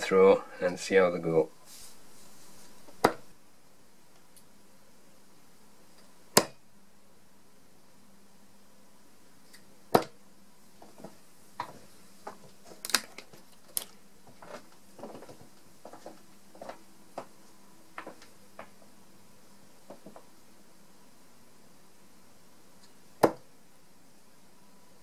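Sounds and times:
dart striking a dartboard: 6.3s - 6.6s, 9.9s - 10.2s, 23.2s - 23.4s
darts clicking and knocking: 6.3s - 6.6s, 22.8s - 23.4s.

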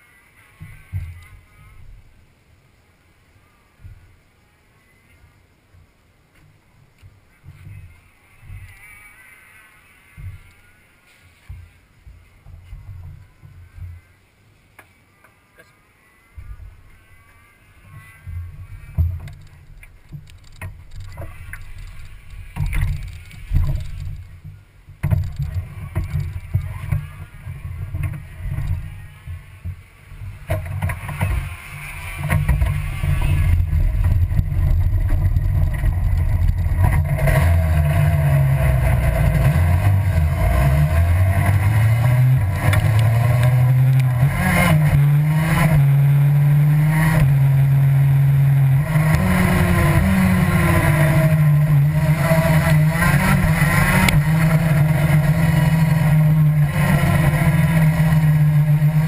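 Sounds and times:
go-kart engine revving: 16.4s - 59.0s.

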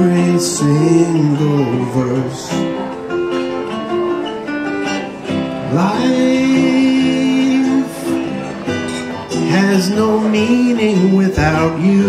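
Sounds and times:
man singing: 0.0s - 2.9s, 5.5s - 8.7s, 9.3s - 12.0s
acoustic guitar: 0.0s - 12.0s.

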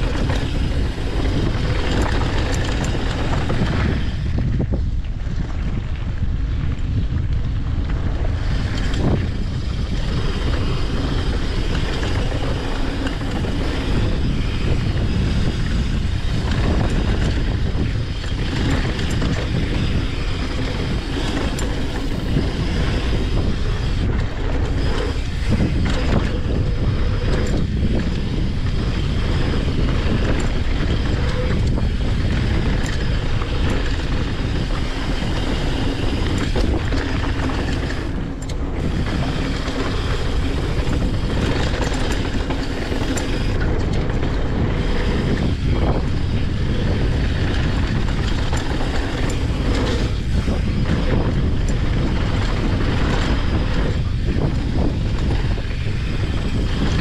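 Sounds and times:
tyres rolling on loose gravel: 0.0s - 6.4s, 7.5s - 57.0s
bike chain and frame rattling: 0.0s - 57.0s
wind buffeting microphone: 0.0s - 57.0s.

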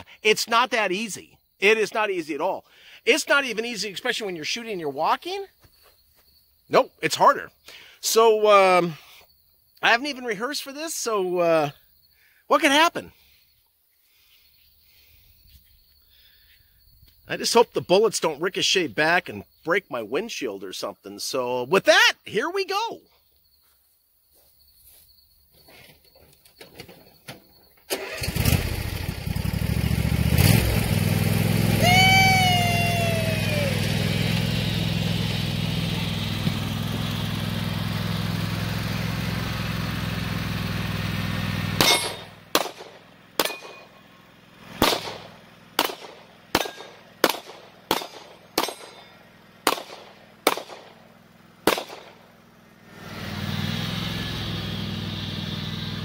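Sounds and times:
riding lawn mower engine: 6.7s - 9.2s, 25.6s - 56.0s
pistol shots: 41.8s - 43.9s, 44.8s - 51.0s, 51.6s - 52.2s.

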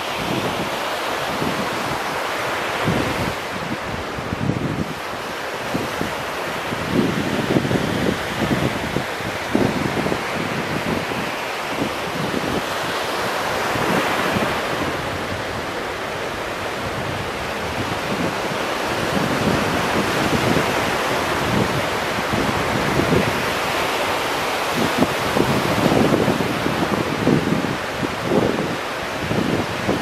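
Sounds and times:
small waves breaking on shore: 0.0s - 30.0s
wind buffeting microphone: 0.0s - 30.0s.

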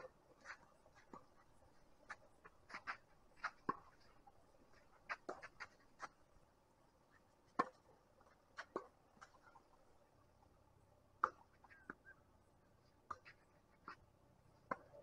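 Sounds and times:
tennis ball bouncing on court: 2.0s - 4.2s, 4.8s - 6.2s, 7.5s - 7.9s, 8.6s - 9.4s, 11.2s - 12.0s, 14.6s - 15.0s
tennis ball hit by racket: 2.1s - 4.1s, 7.5s - 7.8s, 8.6s - 8.9s, 11.2s - 11.5s.

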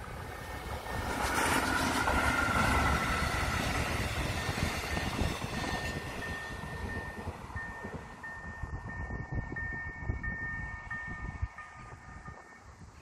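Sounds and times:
train wheels rumbling over rails: 0.0s - 10.1s
level-crossing warning bell: 0.6s - 12.8s.

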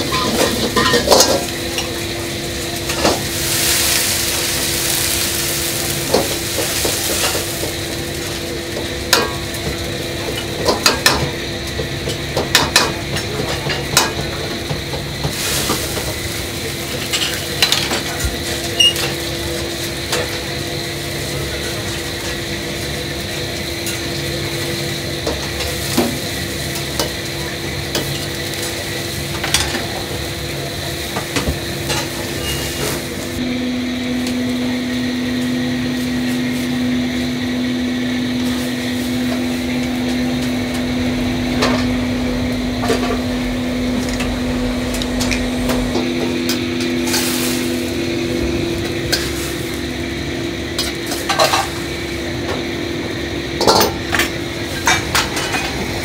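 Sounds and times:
steady hum: 0.0s - 19.6s, 31.9s - 56.0s
vegetables sizzling in a wok: 0.0s - 56.0s
ladle and dish clatter: 0.1s - 1.9s.

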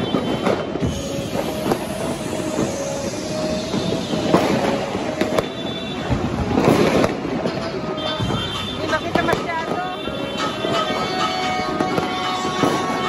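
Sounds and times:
firecrackers crackling and banging: 0.0s - 13.0s
horn sounding: 7.9s - 12.8s.

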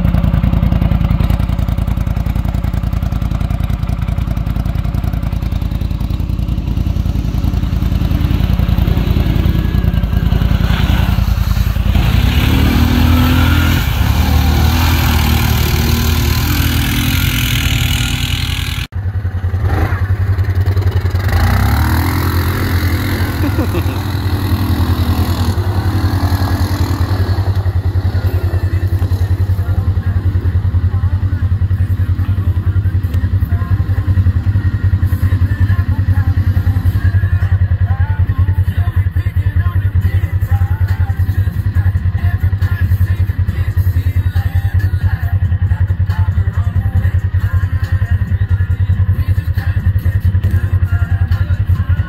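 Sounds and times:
atv engine revving: 0.0s - 38.4s.

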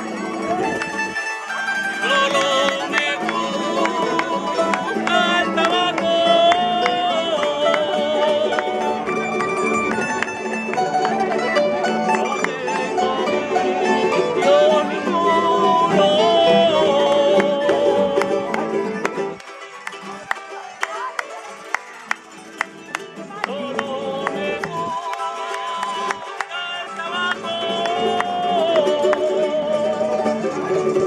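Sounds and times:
folk string band playing: 0.0s - 31.0s
man singing: 1.9s - 9.1s, 12.4s - 18.8s, 23.3s - 30.8s.

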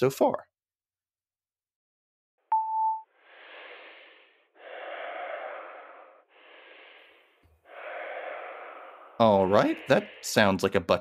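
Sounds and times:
voicemail beep: 2.5s - 3.1s.

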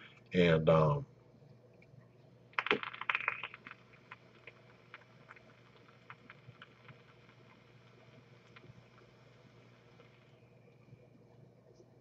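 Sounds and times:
e-cigarette coil crackling and popping: 2.6s - 10.4s.

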